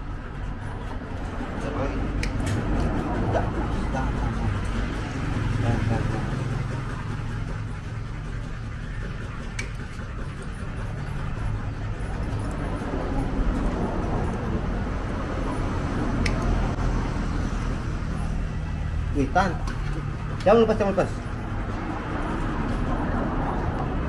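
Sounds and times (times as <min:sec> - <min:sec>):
steady low rumble: 0:10.8 - 0:19.2.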